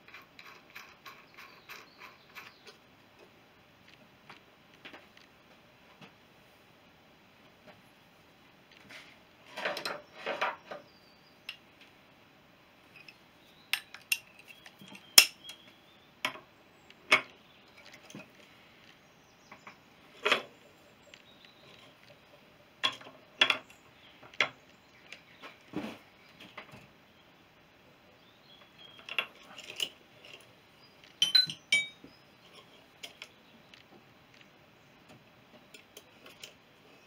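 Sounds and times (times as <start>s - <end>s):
metal tools clinking on metal: 13.0s - 15.6s, 28.8s - 33.3s
tools rattling: 28.9s - 33.3s.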